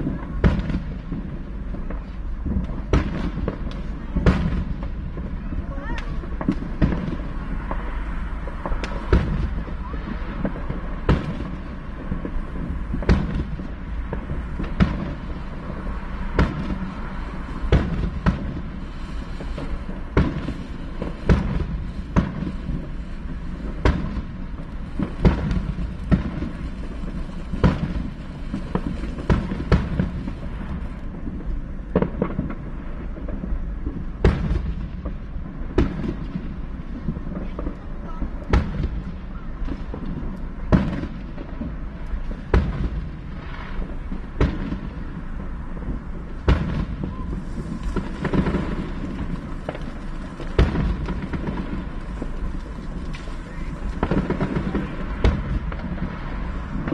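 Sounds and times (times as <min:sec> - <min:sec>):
fireworks bangs and pops: 0:00.0 - 0:56.9.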